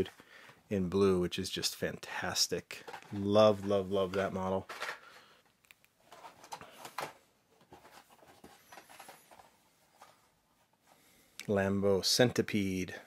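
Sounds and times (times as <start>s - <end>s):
plastic packs rustling: 2.7s - 10.4s.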